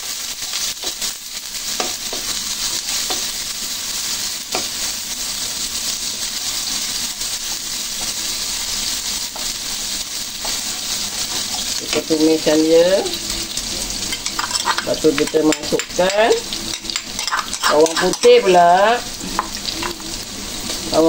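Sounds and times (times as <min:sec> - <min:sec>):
onions sizzling in oil: 0:00.0 - 0:21.0.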